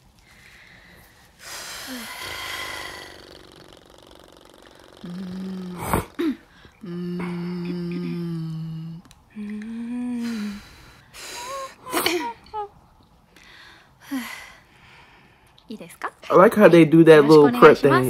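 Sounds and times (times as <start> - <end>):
long breath: 0.2 - 11.8, 13.4 - 15.6
person humming held notes: 4.8 - 10.7.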